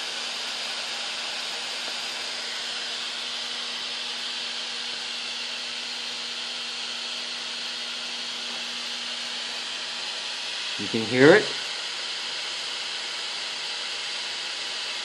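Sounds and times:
gas burner flames hissing: 8.0s - 12.8s.

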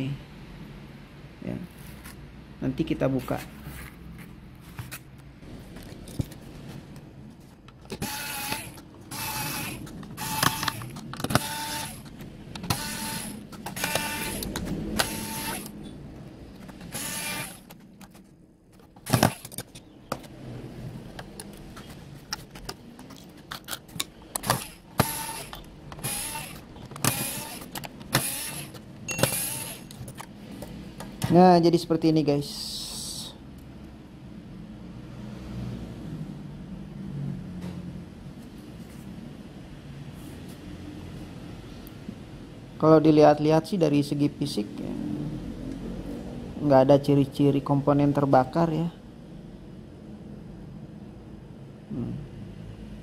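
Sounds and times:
electric screwdriver motor whine: 8.0s - 12.1s, 12.7s - 15.8s, 16.9s - 17.7s, 24.4s - 29.9s.

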